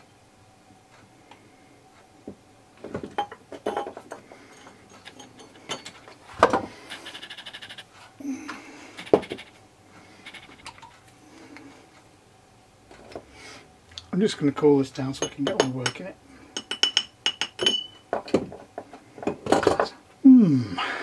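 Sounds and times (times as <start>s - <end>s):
tools knocking on wooden workbench: 6.4s - 6.7s, 18.1s - 19.9s.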